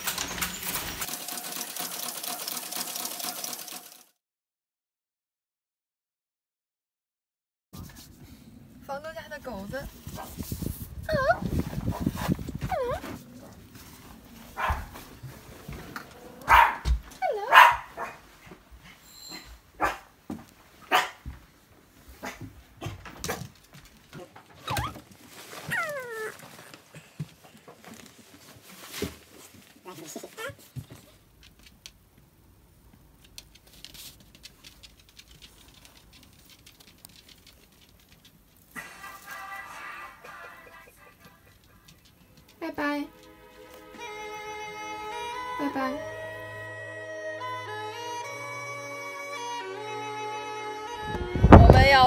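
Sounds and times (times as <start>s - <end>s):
small dog barking: 14.5s - 15.0s, 16.4s - 18.3s, 19.8s - 20.2s, 20.9s - 21.3s
dog claws tapping on tiles: 30.8s - 32.3s, 32.9s - 38.8s, 41.2s - 42.6s.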